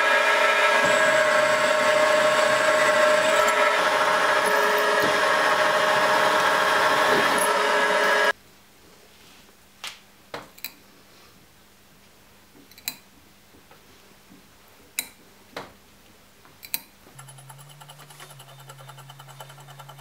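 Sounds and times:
low hum with fine rattle: 16.6 - 20.0.

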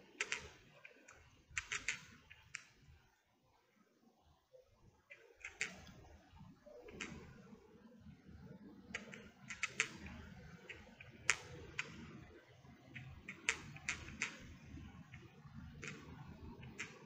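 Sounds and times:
metal knitting needles clicking: 0.2 - 2.7, 5.4 - 6.1, 9.0 - 12.0, 13.0 - 14.6, 15.2 - 17.0.

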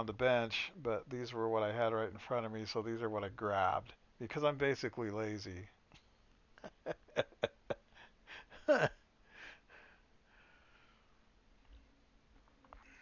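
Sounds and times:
soft breathing: 9.2 - 11.3, 12.7 - 13.0.

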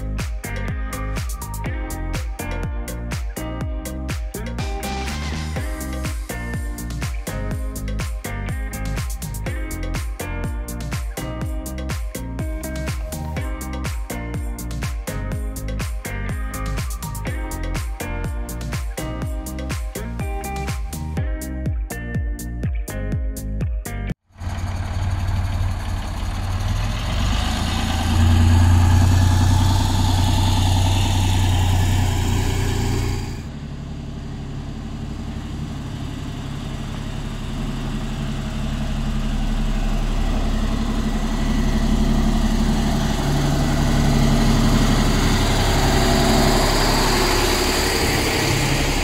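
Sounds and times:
truck diesel engine running: 24.3 - 49.0
truck driving on gravel: 24.4 - 49.0.

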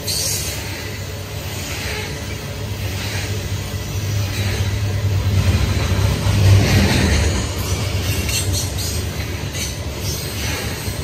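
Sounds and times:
rail cars clicking and rattling: 0.0 - 11.0
train wheels rumbling on rail: 0.0 - 11.0.

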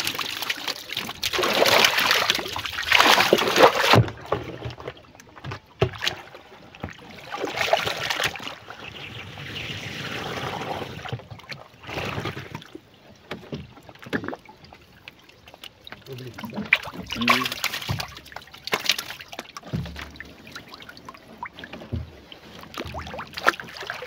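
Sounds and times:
water pouring and splashing: 0.0 - 24.0
water sloshing and lapping: 0.0 - 24.0
knocks against wooden canoe: 17.1 - 19.0, 19.6 - 20.3, 21.5 - 23.8.

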